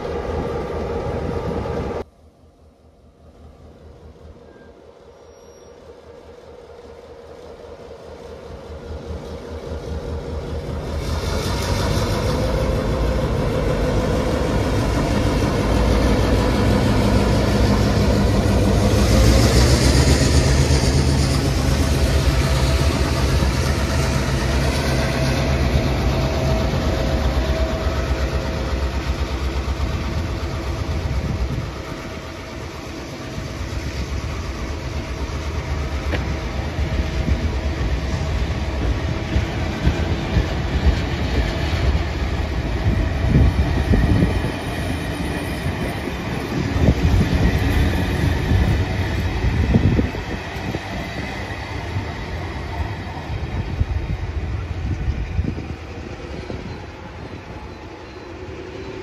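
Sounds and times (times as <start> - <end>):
diesel locomotive engine rumble: 0.0 - 59.0.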